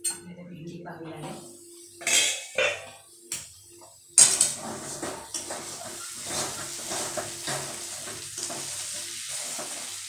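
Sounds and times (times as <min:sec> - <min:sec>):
oil sizzling: 0:01.5 - 0:10.0
spoon scraping and stirring: 0:04.4 - 0:09.8.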